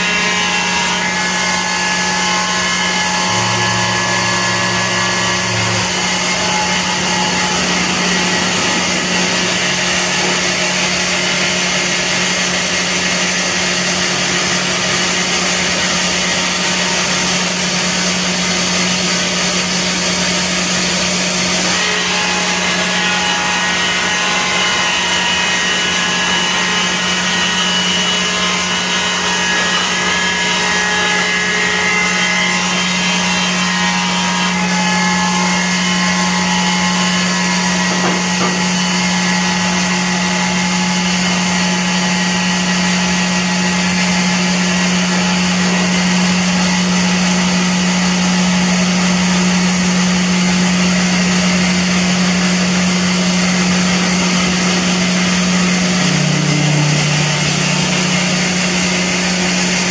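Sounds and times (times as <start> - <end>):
bandsaw mill running: 0.0 - 59.9
higher whining tones: 1.4 - 12.5, 53.6 - 59.8.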